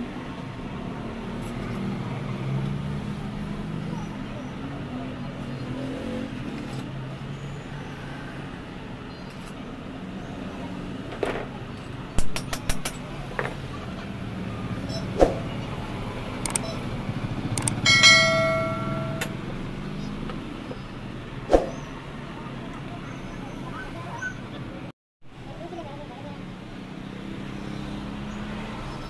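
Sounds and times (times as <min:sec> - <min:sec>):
low traffic hum: 0:00.0 - 0:29.0
sharp metal clicks: 0:12.2 - 0:13.0, 0:16.4 - 0:16.8, 0:17.5 - 0:18.0.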